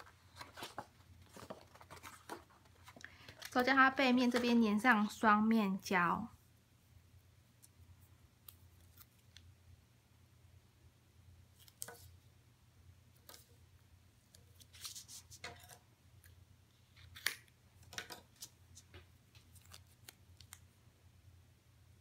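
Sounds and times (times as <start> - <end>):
tape rustling: 0.0 - 3.7, 14.3 - 15.8, 16.8 - 20.7.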